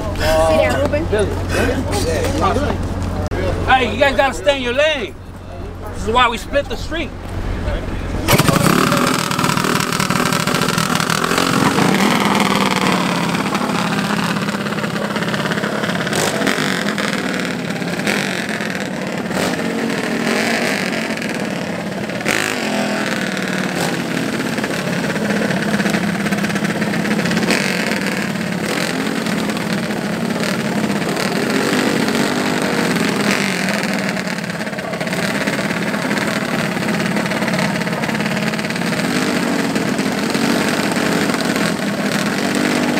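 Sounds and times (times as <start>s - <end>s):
mini bike engines revving: 0.0s - 42.9s.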